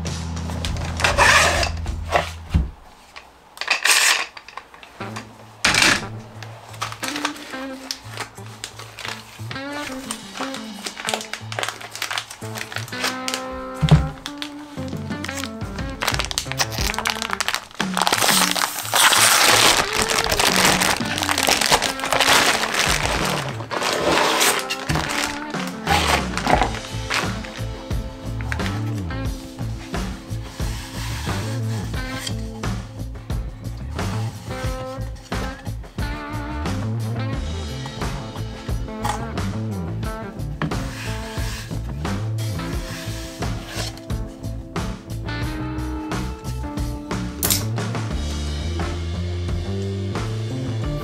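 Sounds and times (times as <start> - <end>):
clamps rubbing and scraping: 0.7 - 2.4, 3.0 - 13.4, 14.0 - 27.7, 28.3 - 32.7, 33.9 - 35.7, 40.6 - 44.1
plastic bag rustling and crinkling: 3.0 - 32.6, 40.6 - 41.9, 42.6 - 44.2
slow melodic background music: 6.2 - 51.0.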